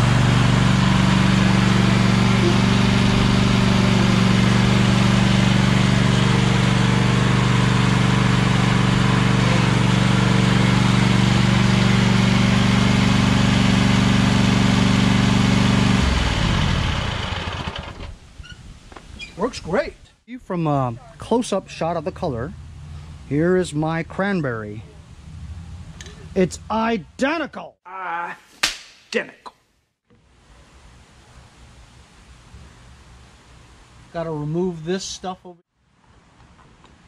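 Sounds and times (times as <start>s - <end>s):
engine winding down: 0.0s - 18.1s, 21.4s - 27.3s
lawn tractor engine running: 0.0s - 18.1s.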